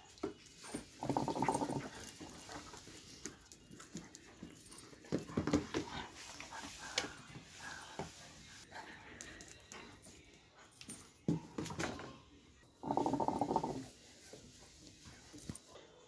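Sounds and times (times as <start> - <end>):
dog vocalising: 1.0 - 1.9.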